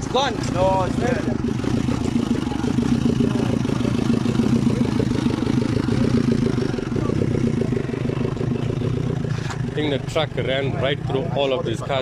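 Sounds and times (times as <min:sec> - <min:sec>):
vehicle engine idling: 0:00.0 - 0:12.0.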